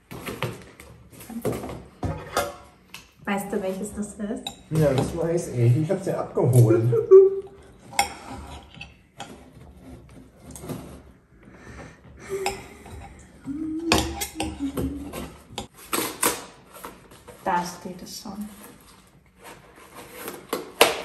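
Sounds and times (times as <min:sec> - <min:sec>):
cardboard packaging rustling: 0:14.8 - 0:21.0.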